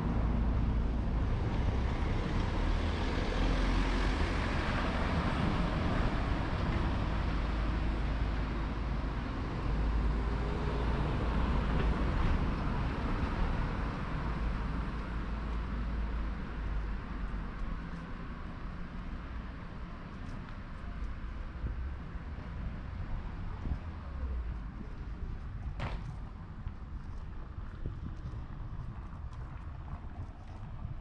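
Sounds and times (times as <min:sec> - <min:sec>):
car engine and tyre noise: 0:00.0 - 0:31.0
street ambience: 0:00.0 - 0:31.0
low rumble: 0:21.2 - 0:31.0.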